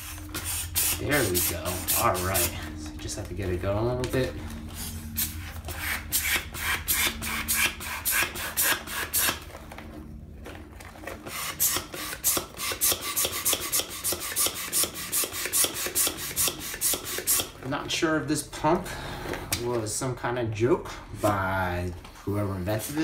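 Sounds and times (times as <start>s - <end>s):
hand air pump strokes: 0.0s - 2.7s, 4.6s - 9.4s, 11.2s - 17.6s.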